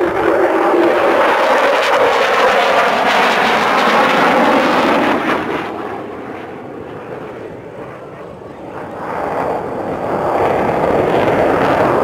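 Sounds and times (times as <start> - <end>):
fighter jet engine roar: 0.0 - 12.0.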